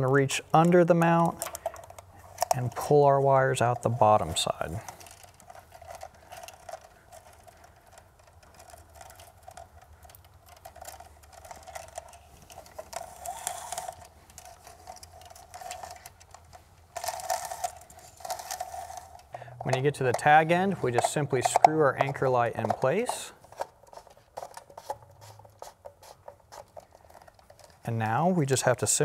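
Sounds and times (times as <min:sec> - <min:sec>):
faint steady hum: 0:00.0 - 0:29.0
wires clicking and rubbing: 0:00.0 - 0:29.0.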